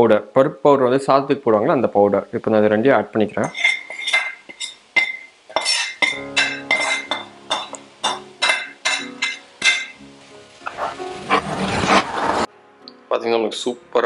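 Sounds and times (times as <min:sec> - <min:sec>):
metal spoon clinking on pan: 0:03.4 - 0:10.0.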